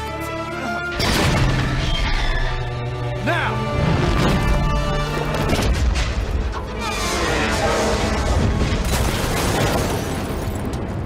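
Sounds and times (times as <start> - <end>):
orchestral music: 0.0 - 8.8.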